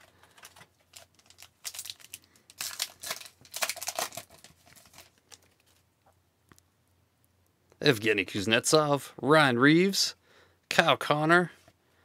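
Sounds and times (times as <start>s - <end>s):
wrapper tearing and crinkling: 0.0s - 5.8s.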